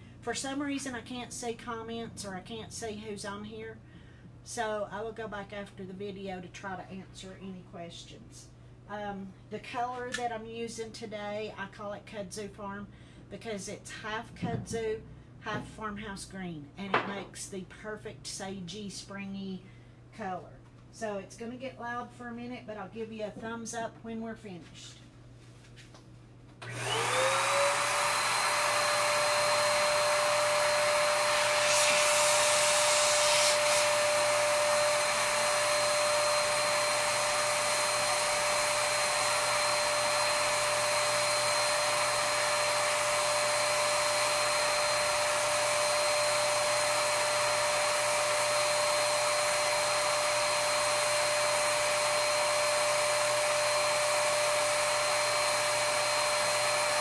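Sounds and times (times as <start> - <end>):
spray turbine whine: 26.6 - 57.0.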